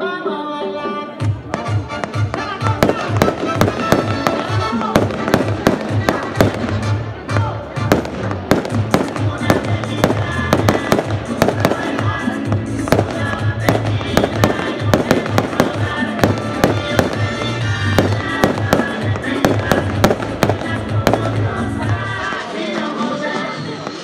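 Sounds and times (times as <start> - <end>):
music with pulsing bass: 1.2 - 22.4
fireworks bursting and crackling: 1.4 - 24.0.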